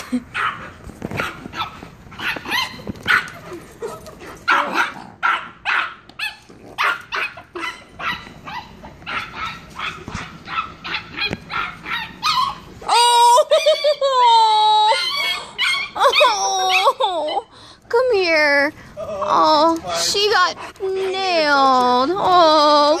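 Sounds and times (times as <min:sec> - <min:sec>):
small dog yapping: 0:01.2 - 0:03.4, 0:04.5 - 0:13.0.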